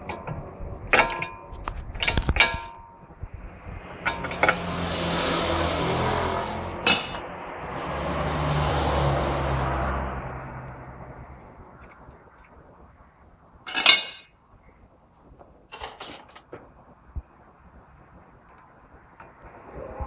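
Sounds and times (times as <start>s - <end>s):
steady noise: 0.0s - 20.0s
metal tools clinking: 13.7s - 14.3s, 15.7s - 16.5s.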